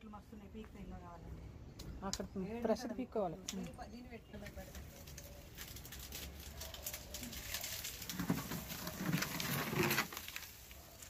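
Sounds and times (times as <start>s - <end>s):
palm fronds rustling and crackling: 3.4s - 11.0s.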